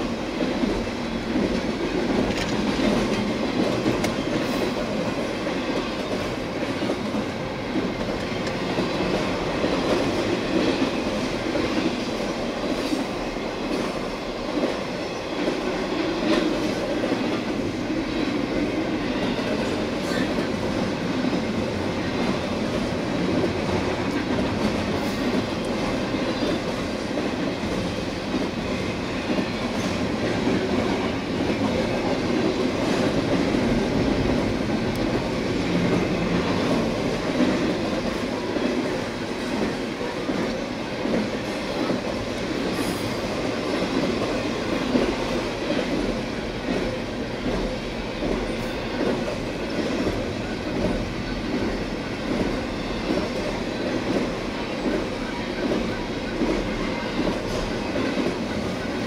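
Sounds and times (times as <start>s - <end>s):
freight train wheels clacking: 0.0s - 59.0s.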